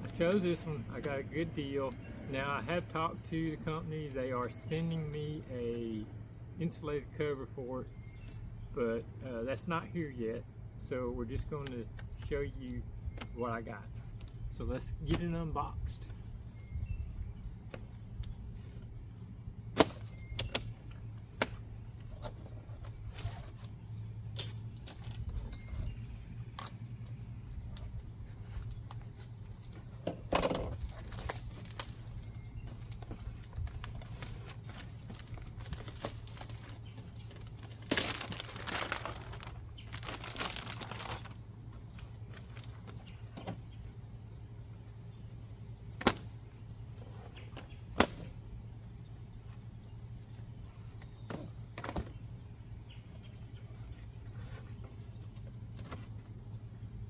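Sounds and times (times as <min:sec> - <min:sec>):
steady low hum: 0:00.0 - 0:57.0
cardboard and packing rustle: 0:22.0 - 0:23.8, 0:27.7 - 0:43.4.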